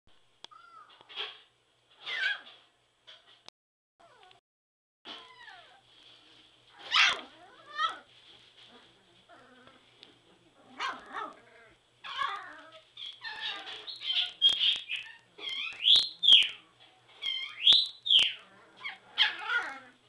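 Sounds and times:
puppies whining: 0:04.0 - 0:04.4, 0:05.1 - 0:05.9, 0:06.8 - 0:08.1, 0:10.8 - 0:20.0.

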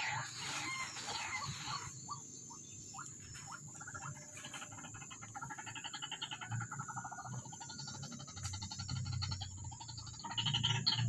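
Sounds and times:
waterhen calling: 0:00.0 - 0:07.7.

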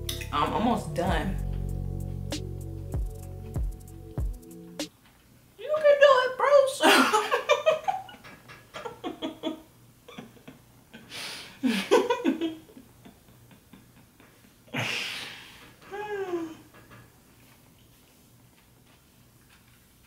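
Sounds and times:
woman giggling: 0:06.8 - 0:08.2, 0:08.8 - 0:14.8.

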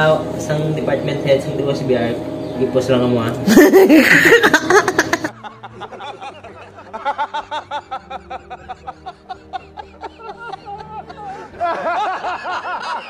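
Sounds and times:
people laughing and talking: 0:03.4 - 0:13.0
men laughing hard: 0:03.5 - 0:13.0.

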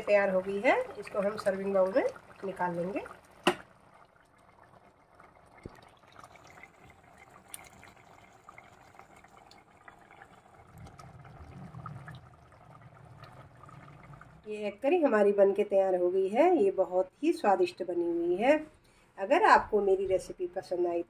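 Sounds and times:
gravy bubbling in pot: 0:00.0 - 0:16.0.

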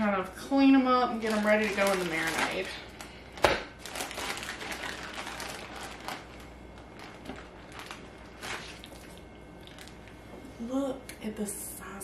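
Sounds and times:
plastic bag crinkling: 0:01.1 - 0:10.1.

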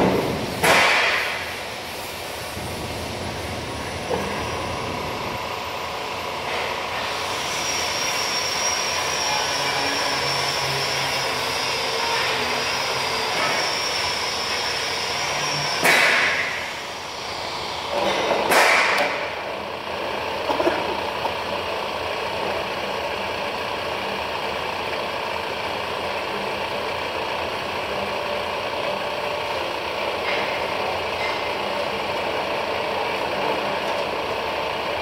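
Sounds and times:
loud noise bursts: 0:00.0 - 0:05.5, 0:06.5 - 0:19.4
band saw cutting metal: 0:06.4 - 0:19.4.

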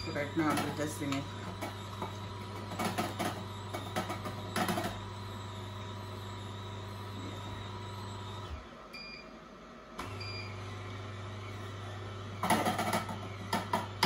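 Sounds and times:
irregular noises: 0:00.0 - 0:09.2
juicer motor humming: 0:00.0 - 0:14.0.

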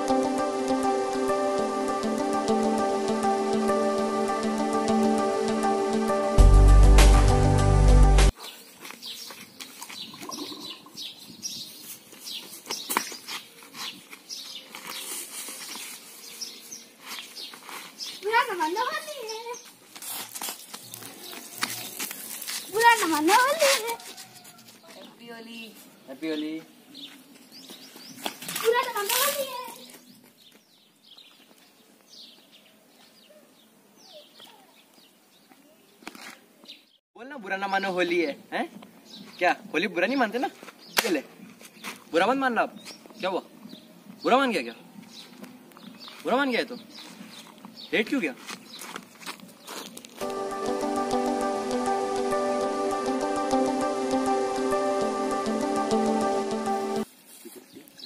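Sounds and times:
birds chirping: 0:08.3 - 0:19.8, 0:24.2 - 0:36.0, 0:37.7 - 0:57.1.

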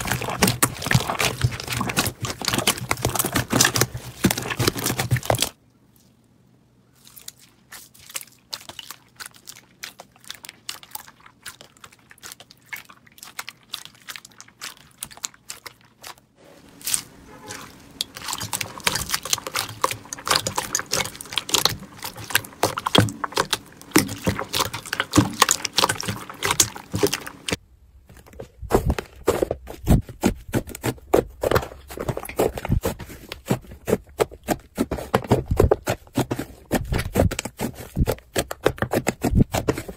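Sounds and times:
hands squishing slime: 0:00.0 - 0:05.6, 0:06.9 - 0:27.6.

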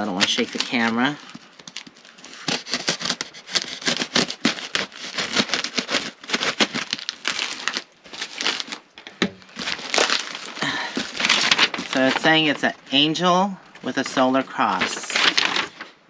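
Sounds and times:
packing tape tearing: 0:00.0 - 0:08.8, 0:09.4 - 0:12.6, 0:14.6 - 0:16.0
cardboard flaps bending: 0:00.0 - 0:12.7
paper crinkling: 0:00.0 - 0:13.1, 0:13.8 - 0:16.0.

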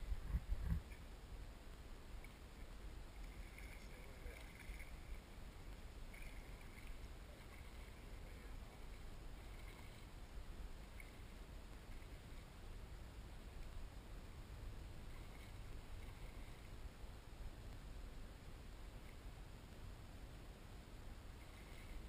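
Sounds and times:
wind rumble on microphone: 0:00.0 - 0:01.1
soft water sounds: 0:00.0 - 0:22.0.

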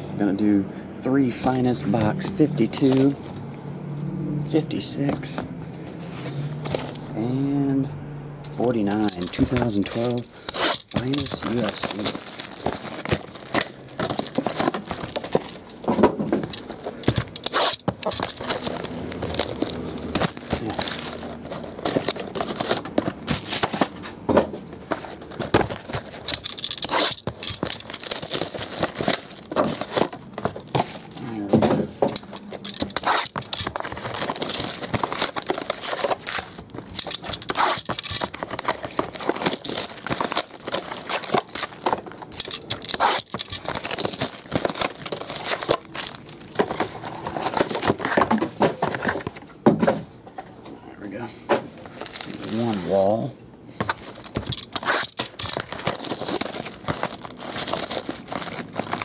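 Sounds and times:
cellophane crinkling and tearing: 0:08.7 - 0:24.1, 0:24.8 - 0:31.5, 0:32.1 - 0:48.3, 0:51.8 - 0:59.0
cardboard boxes handled: 0:09.1 - 0:50.0, 0:53.8 - 0:59.0.

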